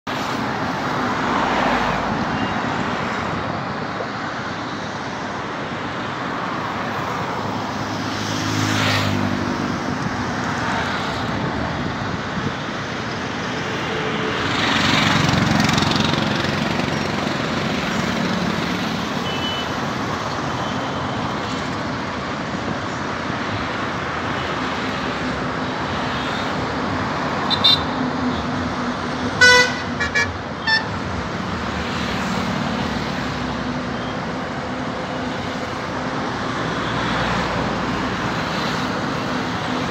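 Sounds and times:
highway traffic passing: 0:00.0 - 0:39.9.

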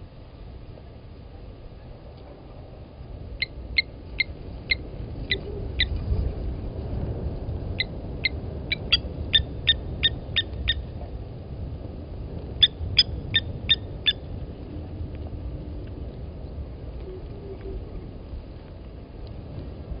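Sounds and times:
lapwing alarm calls: 0:07.8 - 0:10.8.

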